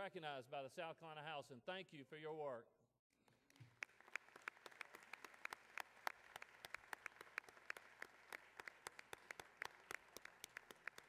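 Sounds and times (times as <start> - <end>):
faint scattered applause: 3.2 - 11.0.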